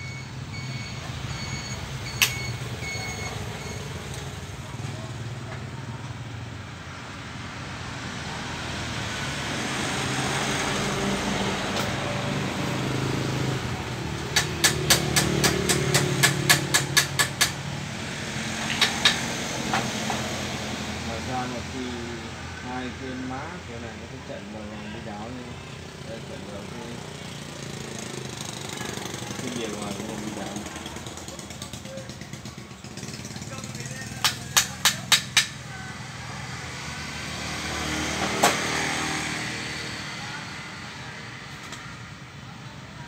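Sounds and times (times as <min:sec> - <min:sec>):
reversing beeper: 0:00.0 - 0:04.0
vehicle engine running: 0:10.0 - 0:43.0.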